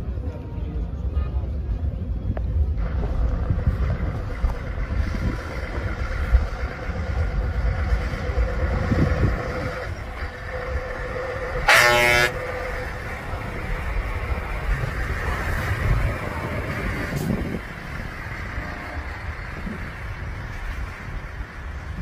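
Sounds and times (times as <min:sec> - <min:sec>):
truck engine driving past: 0:02.6 - 0:22.0
truck air horn blast: 0:11.6 - 0:12.9, 0:18.4 - 0:19.5.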